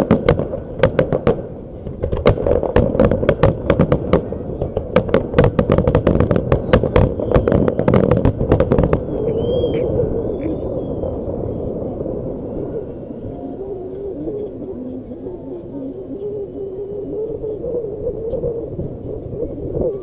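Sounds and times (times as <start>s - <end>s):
firework shells bursting: 0.0s - 10.0s.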